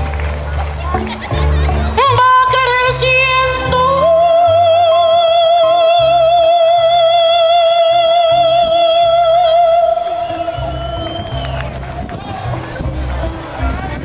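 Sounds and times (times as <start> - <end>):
plodding bass line: 0.0 - 14.0
woman singing into a microphone: 1.8 - 10.6.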